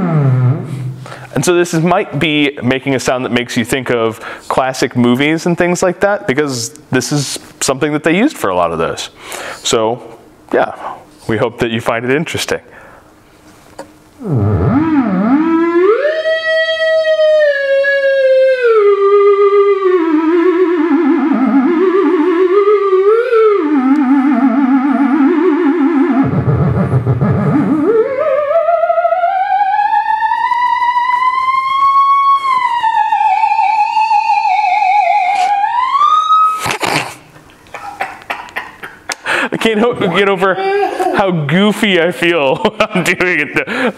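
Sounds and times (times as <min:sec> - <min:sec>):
theremin tone with vibrato: 0:00.0 - 0:02.6, 0:14.2 - 0:36.8.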